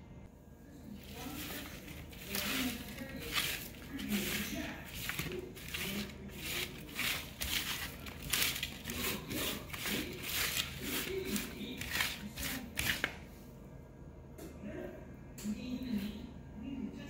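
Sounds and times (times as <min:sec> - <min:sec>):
broccoli scraping on metal pan: 0:01.0 - 0:13.1.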